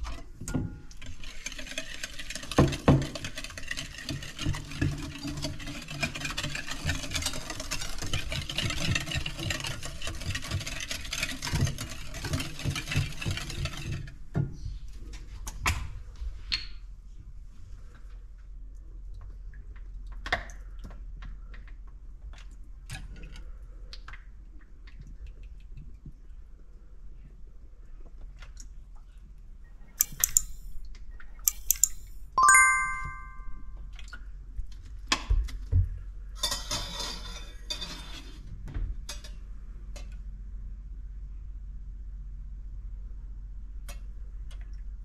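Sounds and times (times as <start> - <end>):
utensils tapping against bowl: 31.5 - 32.2.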